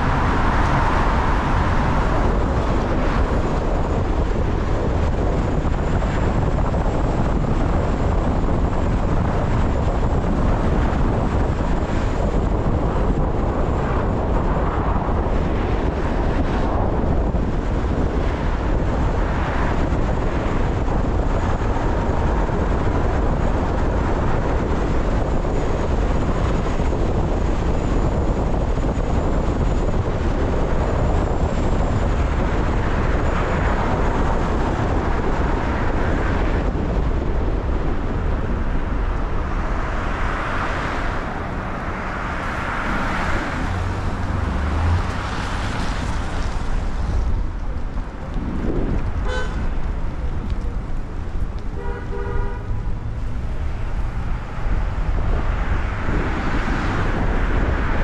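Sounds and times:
traffic hiss and rumble: 0.0s - 58.0s
car horn honking: 49.2s - 49.7s, 51.7s - 52.8s.

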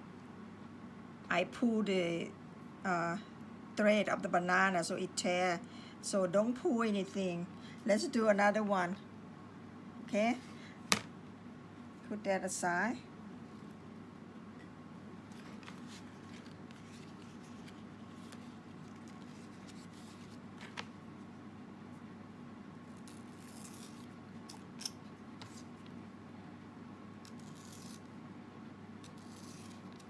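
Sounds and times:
steady low hum: 0.0s - 30.0s
scissors cutting leaf: 22.9s - 25.6s, 27.2s - 28.1s, 29.0s - 30.0s.

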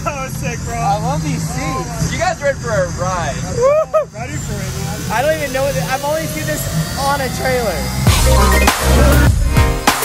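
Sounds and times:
electronic music with heavy beat: 5.1s - 10.0s.

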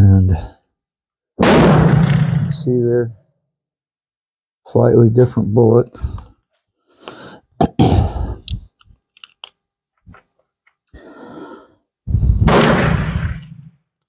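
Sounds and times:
pistol cartridges clicking: 8.4s - 9.6s.

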